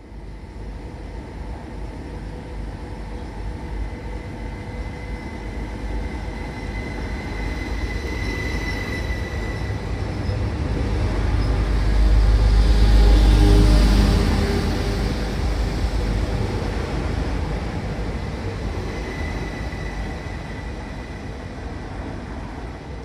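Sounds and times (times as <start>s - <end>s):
train rumble: 0.0s - 23.0s.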